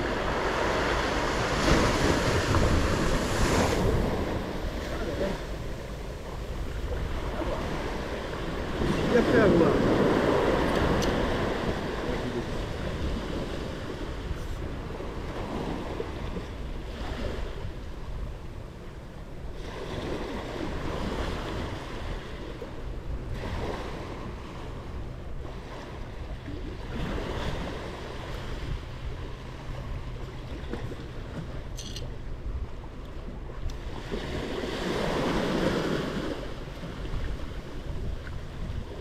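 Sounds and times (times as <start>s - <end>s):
small waves breaking on sand: 0.0s - 31.6s, 32.9s - 39.0s.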